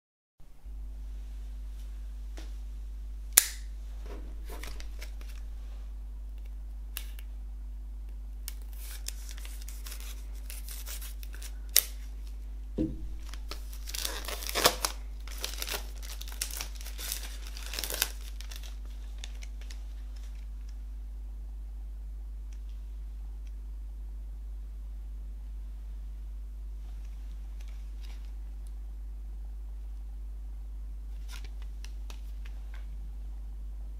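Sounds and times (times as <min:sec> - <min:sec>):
low steady hum: 0:00.4 - 0:33.9
plastic film tearing and crackling: 0:04.4 - 0:05.4, 0:08.5 - 0:12.4, 0:13.2 - 0:20.5
knife slitting plastic wrap: 0:08.5 - 0:12.0, 0:13.2 - 0:19.7.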